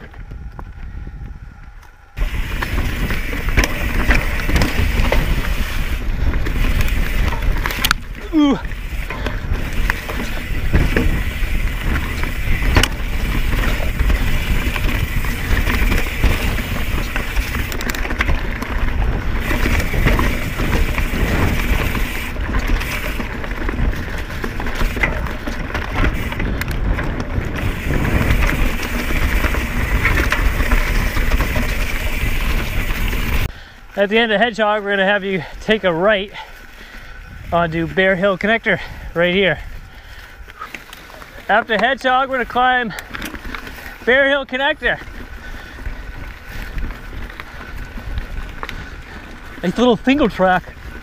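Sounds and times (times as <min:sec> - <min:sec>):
wind on microphone: 0:00.0 - 0:33.5, 0:36.7 - 0:38.1
bike tyres on dirt: 0:00.0 - 0:51.0
bike rattling and knocking: 0:02.2 - 0:33.6, 0:34.2 - 0:51.0.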